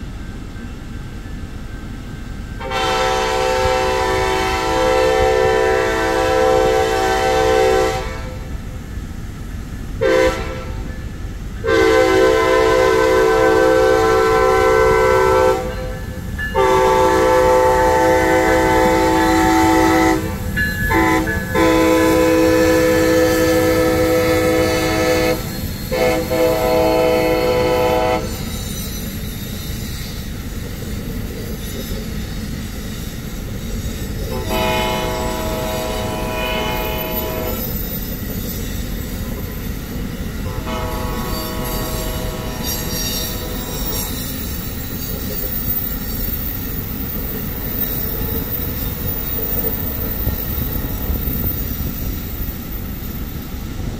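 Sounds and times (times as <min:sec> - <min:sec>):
train cars rumbling past: 0:00.0 - 0:53.9
train air horn blasts: 0:02.6 - 0:08.6, 0:10.0 - 0:10.9, 0:11.6 - 0:28.6, 0:34.2 - 0:37.8, 0:40.5 - 0:44.3.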